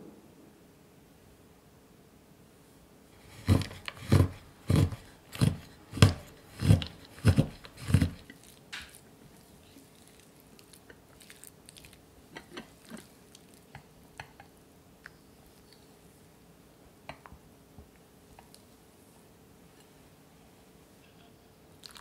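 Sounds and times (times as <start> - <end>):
knife chopping on wooden board: 3.2 - 9.0
spatula stirring in glass bowl: 3.2 - 13.2.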